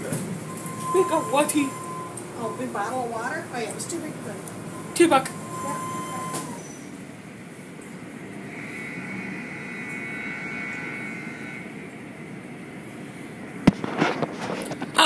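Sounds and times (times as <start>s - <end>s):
car wash machinery whirring: 0.0s - 15.0s
faint high whine: 0.0s - 15.0s.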